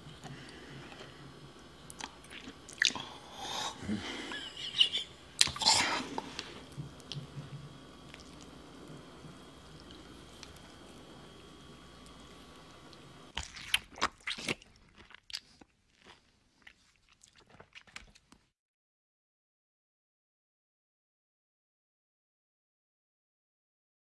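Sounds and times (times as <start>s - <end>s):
faint steady hum: 0.0s - 18.5s
wet sticky gel squelches: 13.4s - 15.6s.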